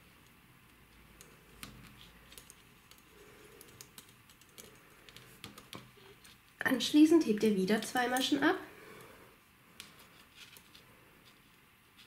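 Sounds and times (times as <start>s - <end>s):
knitting needles clicking: 0.2s - 6.6s.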